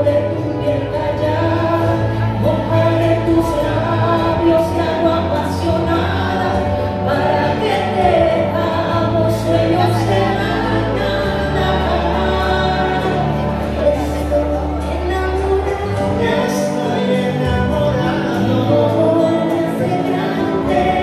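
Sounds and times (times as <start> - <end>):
man and woman singing duet: 0.0 - 21.0.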